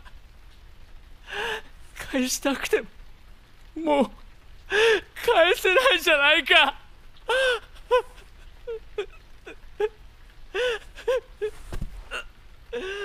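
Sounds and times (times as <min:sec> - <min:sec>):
young man sobbing: 0:04.7 - 0:13.0
dull thump: 0:11.7 - 0:12.0.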